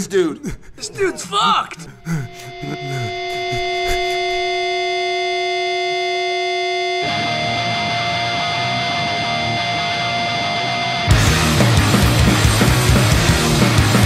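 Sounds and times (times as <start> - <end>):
ringing electric guitar drone: 2.0 - 14.0
distorted guitar noise: 2.3 - 14.0
punk band with pounding drums: 11.1 - 14.0.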